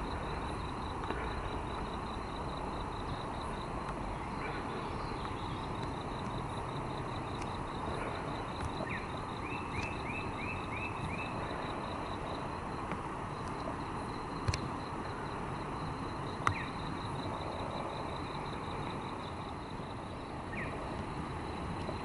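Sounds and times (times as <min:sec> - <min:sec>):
steady hiss: 0:00.0 - 0:22.0
bird chirping: 0:16.5 - 0:16.8.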